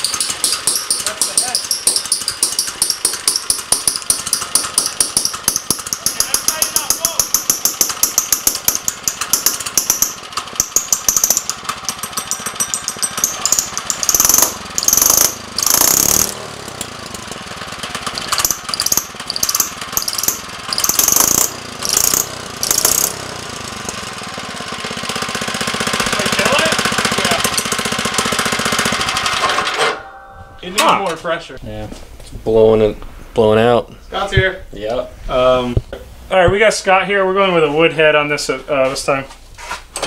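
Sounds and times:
small engine popping: 0:00.0 - 0:29.9.

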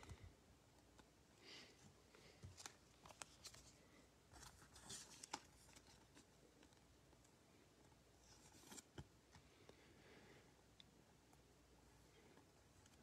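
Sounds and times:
trading cards rustling and clicking: 0:02.3 - 0:03.8, 0:04.4 - 0:06.8.

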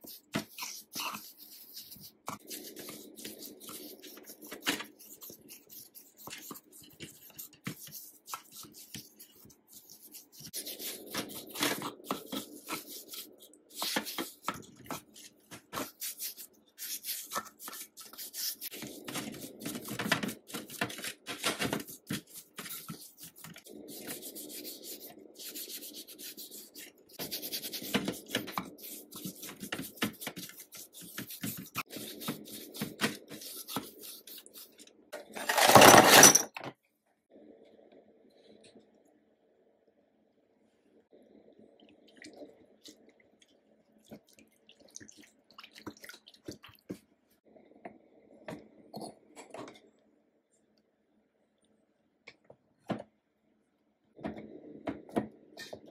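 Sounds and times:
brush scrubbing metal in liquid: 0:00.0 - 0:34.8.

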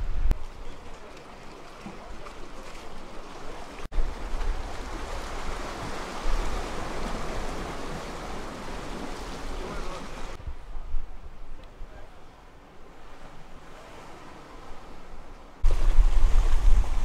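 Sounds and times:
wind rumbling on microphone: 0:00.0 - 0:00.6, 0:03.9 - 0:12.2, 0:14.8 - 0:17.0
sea waves on rocky shore: 0:00.3 - 0:10.4, 0:12.0 - 0:17.0.

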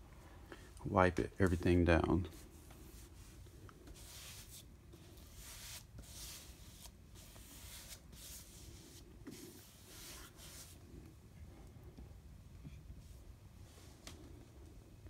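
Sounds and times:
paintbrush strokes on wood: 0:01.2 - 0:11.0.

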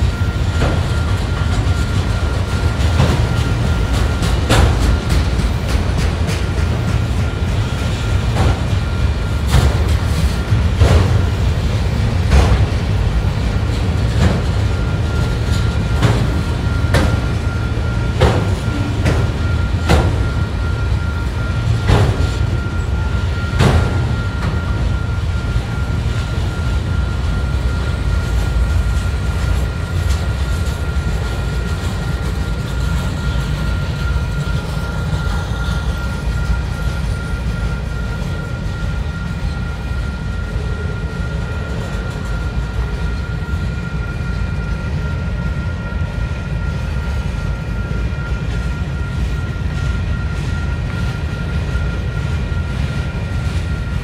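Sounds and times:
freight train rumbling past: 0:00.0 - 0:54.0
thin steady whine: 0:00.0 - 0:54.0
train wheel clicks: 0:00.1 - 0:21.1.

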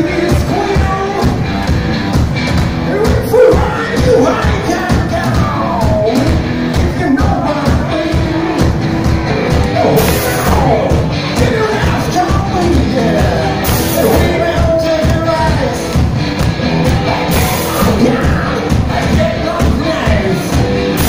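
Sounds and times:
man yelling lead vocal: 0:00.0 - 0:01.4, 0:02.9 - 0:08.6, 0:09.6 - 0:16.0, 0:17.1 - 0:21.0
bass guitar: 0:00.0 - 0:21.0
drums: 0:00.0 - 0:21.0
electric guitars: 0:00.0 - 0:21.0.

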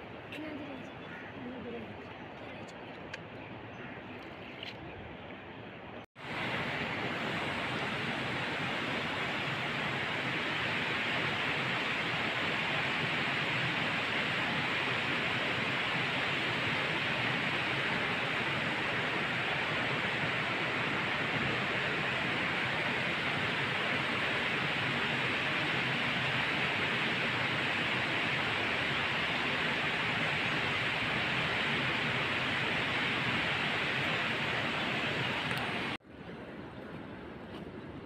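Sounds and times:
river rushing: 0:06.2 - 0:36.0.

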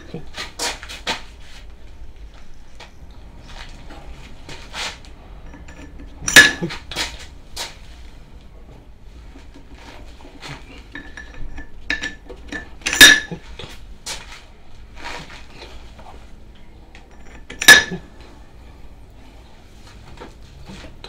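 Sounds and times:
loud ringing metal clinks: 0:05.4 - 0:06.7, 0:11.0 - 0:13.4, 0:17.1 - 0:18.1
metal parts clinking: 0:05.5 - 0:06.7, 0:10.9 - 0:13.4, 0:17.1 - 0:18.0.

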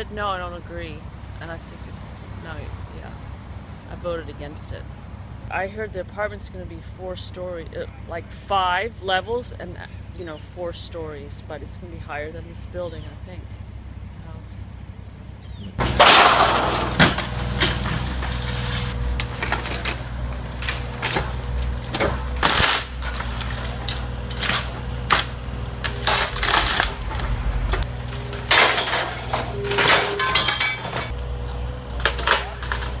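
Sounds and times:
excavator engine running: 0:00.0 - 0:33.0
debris crashing down: 0:15.8 - 0:31.1
wood cracking and splintering: 0:15.8 - 0:33.0.

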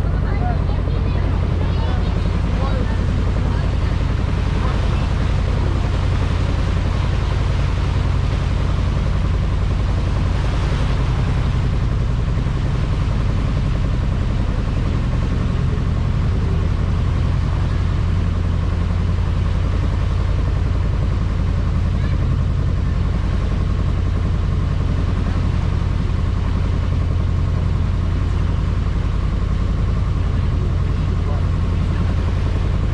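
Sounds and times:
boat engine droning: 0:00.0 - 0:32.9.

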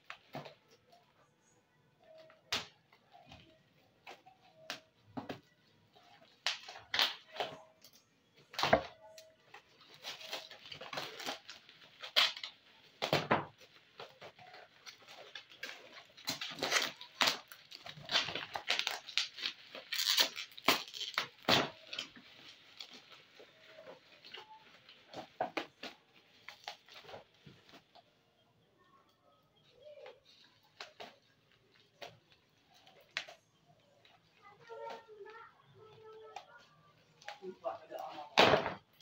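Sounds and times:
packaging rustling and crinkling: 0:03.0 - 0:28.1.

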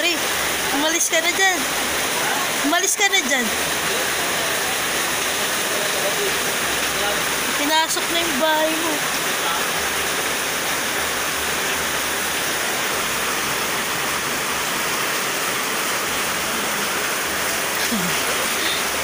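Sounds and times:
floodwater rushing: 0:00.0 - 0:19.0.

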